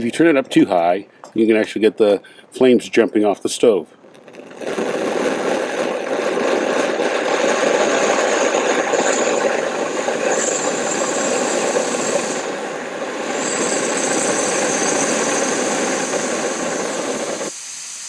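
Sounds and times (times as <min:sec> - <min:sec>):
gas stove burner roaring: 0:04.0 - 0:18.0.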